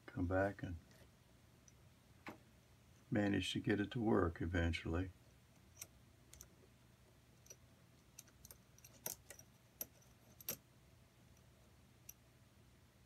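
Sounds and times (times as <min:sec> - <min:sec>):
small metal parts clicking: 0:05.6 - 0:06.6, 0:07.4 - 0:10.6.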